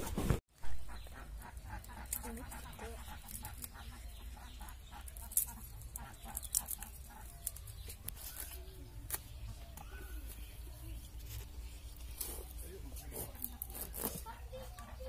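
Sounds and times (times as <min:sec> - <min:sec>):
chickens clucking: 0:00.6 - 0:11.6, 0:12.3 - 0:15.0
vegetables being peeled and cut: 0:01.1 - 0:15.0.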